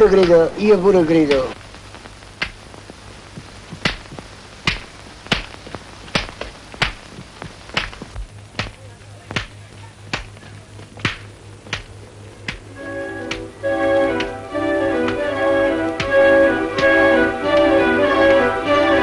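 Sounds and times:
low steady hum: 0.0s - 19.0s
stick knocking on pole: 16.0s - 17.0s.

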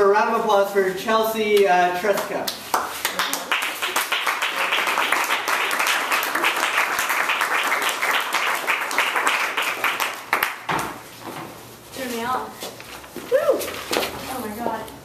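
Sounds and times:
audience applauding: 2.7s - 10.7s.

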